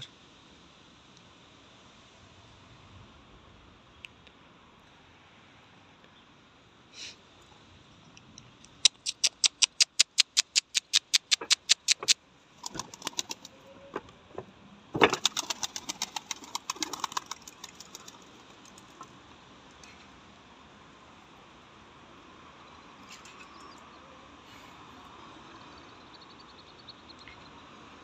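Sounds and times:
pigeon wings clapping: 8.9 - 13.5, 15.0 - 19.0.

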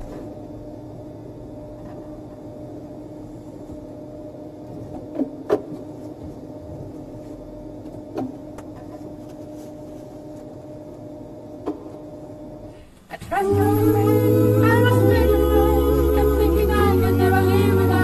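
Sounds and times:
elevator car humming: 13.2 - 18.0.

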